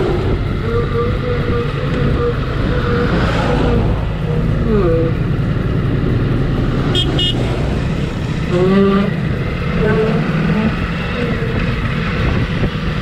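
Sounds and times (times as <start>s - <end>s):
motorcycle engine running: 0.0s - 13.0s
horn toots: 6.9s - 7.6s, 8.5s - 9.2s.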